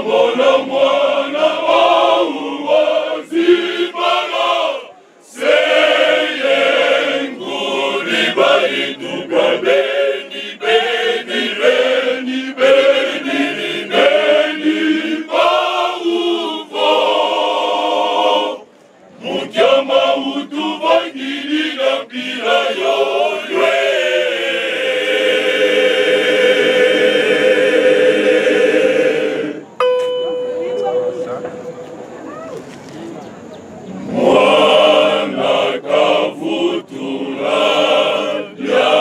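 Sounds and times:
male choir singing unaccompanied: 0.0 - 29.8, 34.0 - 39.0.

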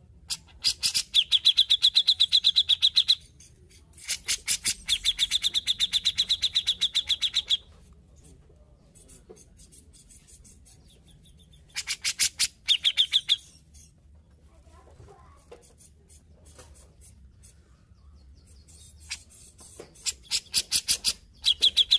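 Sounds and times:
bird calling rapid sharp notes: 11.7 - 13.5.

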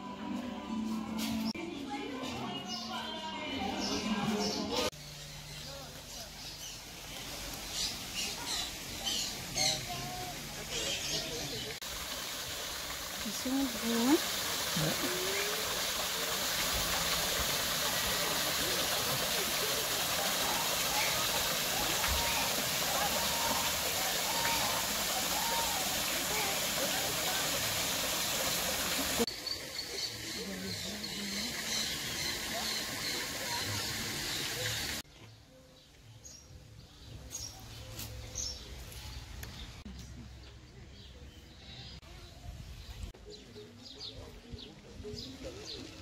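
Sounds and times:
waterfall splashing into pond: 5.5 - 35.0
loud even hiss: 6.7 - 30.1.

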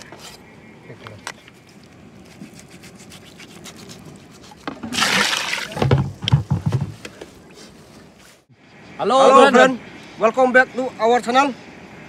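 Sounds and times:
water splashing in bowl: 4.7 - 6.1
water gushing into steel bowl: 4.9 - 5.8.

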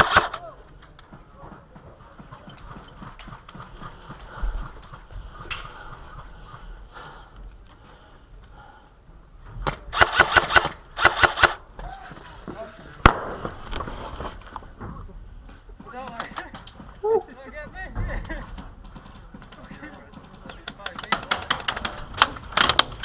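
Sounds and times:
airsoft rifle full-auto bursts: 0.0 - 0.4, 10.0 - 11.6.

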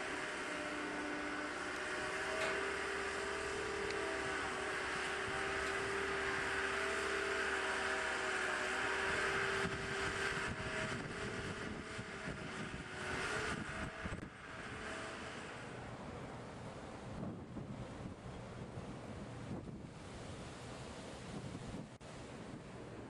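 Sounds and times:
lift engine whining: 0.0 - 19.8.

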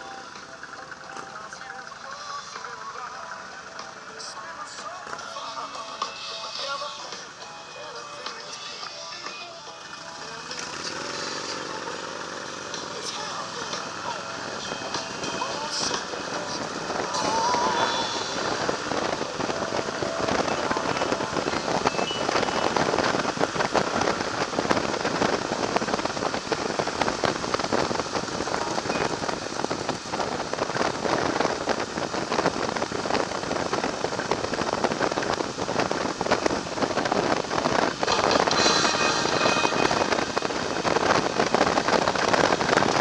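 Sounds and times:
motorcycle road noise: 0.0 - 43.0
wind rushing over microphone: 12.5 - 43.0.

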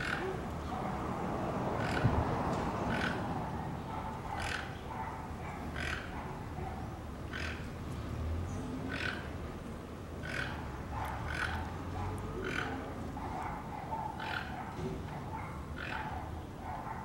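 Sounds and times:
toucan hoarse croaks: 1.7 - 3.4, 4.3 - 4.8, 5.8 - 6.2, 7.3 - 7.7, 8.9 - 9.4, 10.2 - 11.7, 12.3 - 12.9, 14.1 - 14.7.

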